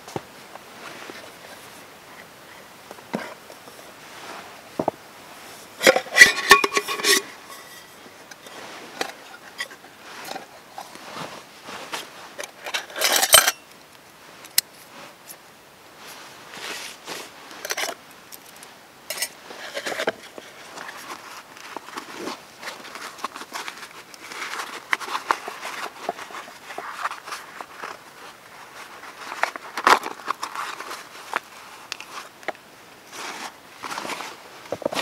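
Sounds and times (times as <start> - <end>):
cloth sack rustling: 3.8 - 12.6
metal mugs clattering: 5.8 - 7.9, 12.7 - 13.6
metal mugs clinking and scraping: 5.8 - 10.5, 12.4 - 13.7, 19.1 - 20.9
metallic ring: 6.0 - 8.0.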